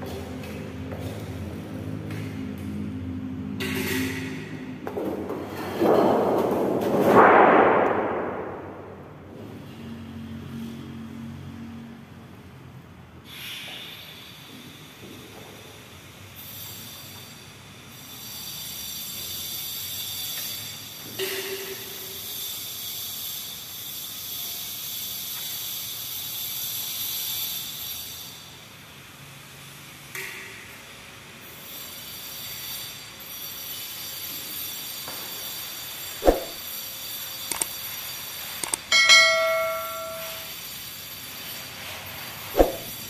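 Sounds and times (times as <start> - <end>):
metal sheet swishing and rustling: 36.2 - 36.6, 42.5 - 43.0.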